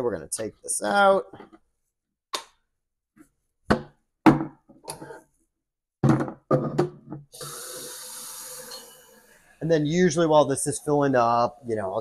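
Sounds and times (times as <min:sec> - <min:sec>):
tap water running: 0:07.4 - 0:09.4.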